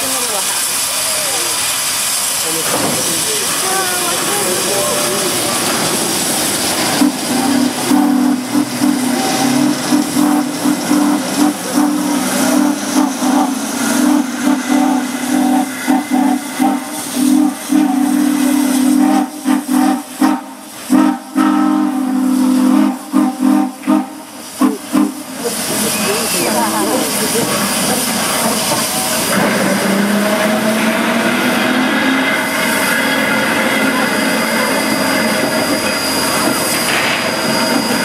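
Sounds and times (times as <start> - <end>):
steam hissing: 0.0 - 38.0
steam whistle blowing: 7.0 - 26.0.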